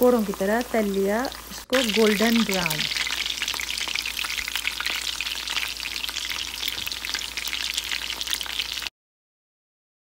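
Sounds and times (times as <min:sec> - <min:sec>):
chicken sizzling in hot oil: 0:00.0 - 0:08.9.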